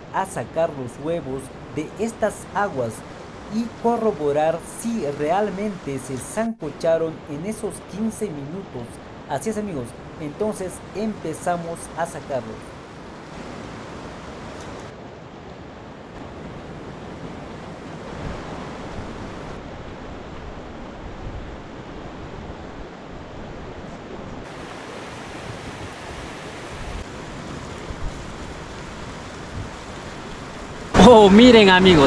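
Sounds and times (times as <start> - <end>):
geyser water rushing: 24.4 - 32.0.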